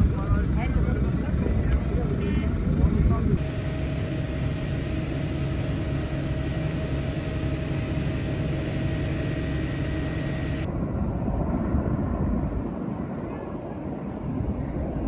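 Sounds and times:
faint high whine: 0:00.0 - 0:10.8
engine drone: 0:00.0 - 0:15.0.

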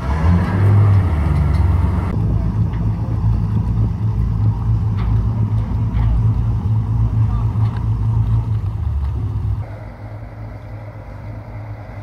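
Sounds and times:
heavy engine humming: 0:00.0 - 0:12.0.

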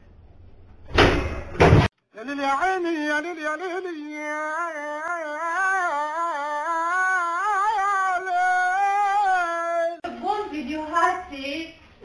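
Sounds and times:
man singing long held note: 0:02.1 - 0:10.0.

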